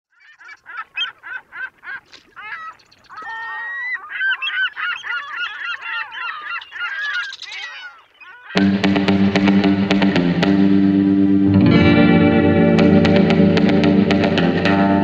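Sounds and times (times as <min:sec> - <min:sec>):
birds honking: 0:00.1 - 0:11.2.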